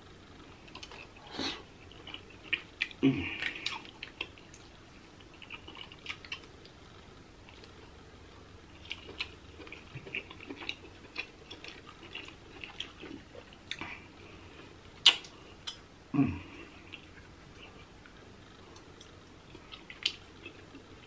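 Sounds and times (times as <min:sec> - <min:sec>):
wet mouth sounds: 0:15.0 - 0:15.8.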